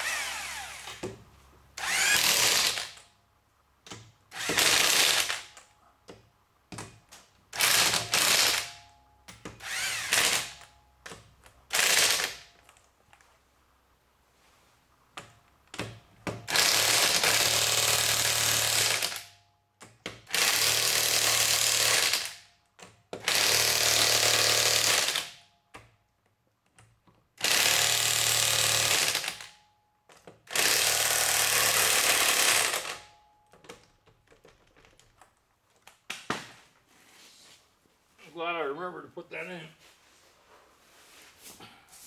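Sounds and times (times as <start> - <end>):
impact wrench bursts: 0.0 - 1.1, 1.8 - 3.0, 4.3 - 5.5, 7.5 - 8.8, 9.5 - 10.7, 11.7 - 12.5, 15.8 - 19.3, 20.2 - 22.5, 23.2 - 25.4, 27.4 - 29.6, 30.5 - 33.1.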